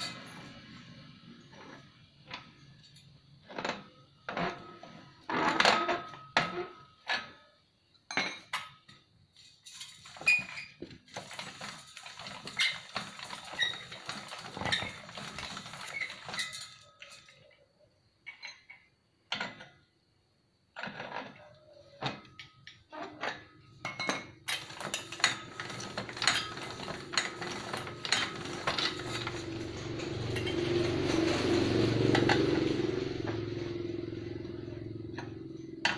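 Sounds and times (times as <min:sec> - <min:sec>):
metal clanks and clinks: 0:00.0 - 0:00.8, 0:08.1 - 0:17.5, 0:18.2 - 0:19.7, 0:22.1 - 0:35.9
scraping ringing metal: 0:25.4 - 0:35.9.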